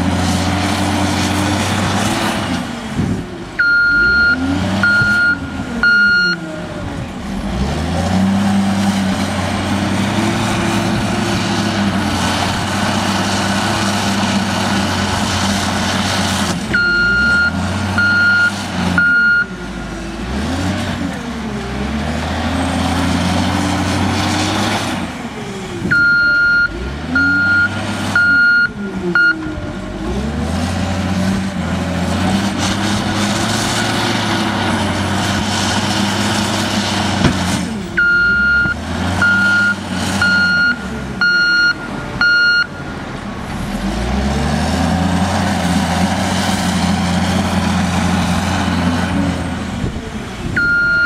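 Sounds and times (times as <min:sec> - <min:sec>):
diesel engine revving: 0:00.0 - 0:51.0
reversing alarm beeps: 0:03.6 - 0:06.5, 0:16.8 - 0:19.6, 0:25.9 - 0:29.4, 0:38.0 - 0:42.8, 0:50.6 - 0:51.0.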